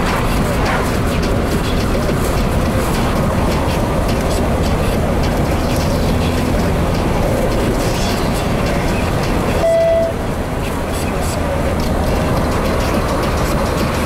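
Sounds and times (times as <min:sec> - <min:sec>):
in-cabin road and engine noise: 0:00.0 - 0:14.0
short electronic beep: 0:09.6 - 0:10.2.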